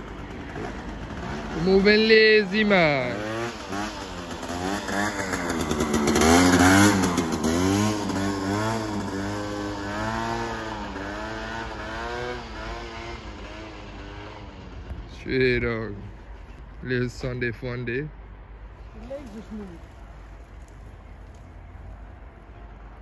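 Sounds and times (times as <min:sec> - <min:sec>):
scooter engine riding away: 0:00.0 - 0:15.2.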